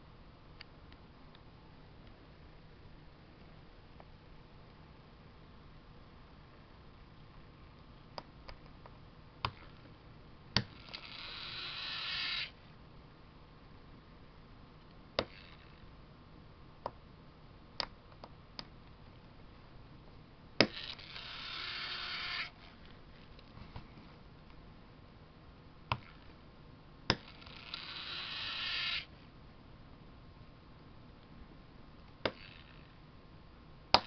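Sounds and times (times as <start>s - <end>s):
small motor whirring: 10.6s - 12.6s, 15.2s - 15.8s, 20.6s - 22.8s, 27.1s - 29.1s, 32.3s - 33.0s.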